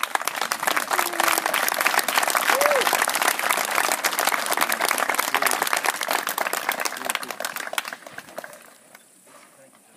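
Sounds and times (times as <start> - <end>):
group clapping: 0.0 - 9.0.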